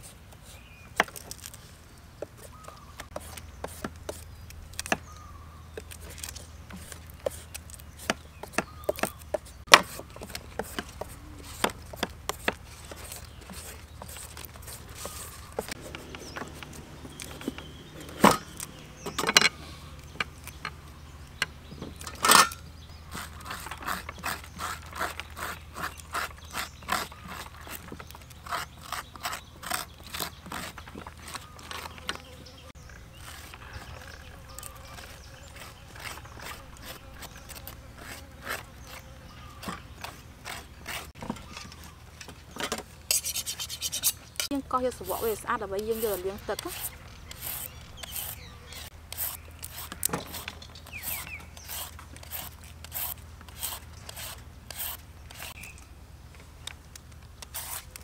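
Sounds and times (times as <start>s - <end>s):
peeler shaving papaya: 23.0s - 32.2s, 33.1s - 41.2s, 43.1s - 55.7s, 57.4s - 58.0s
metal spoon scraping seeds: 43.1s - 55.7s.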